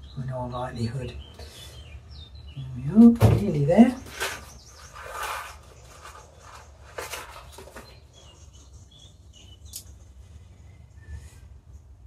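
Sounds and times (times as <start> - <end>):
bird chirps: 0.0 - 11.4
paper seed packet rustling: 3.8 - 8.5.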